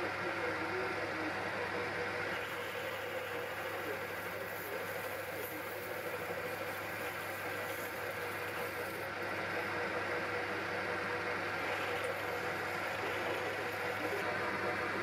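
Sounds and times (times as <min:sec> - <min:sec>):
lathe motor humming: 0:00.0 - 0:15.0.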